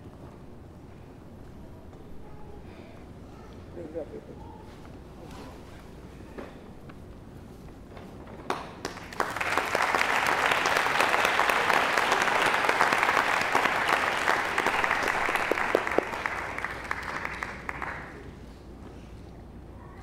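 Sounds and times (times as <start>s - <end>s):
audience applauding: 8.5s - 18.4s.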